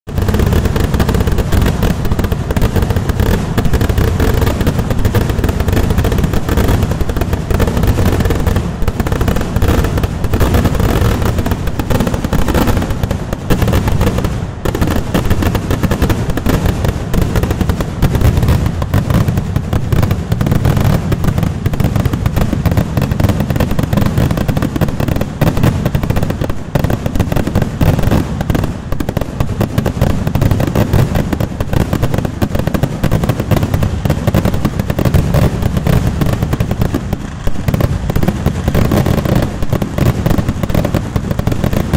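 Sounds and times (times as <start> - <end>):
firecracker bangs: 0.1 - 41.9.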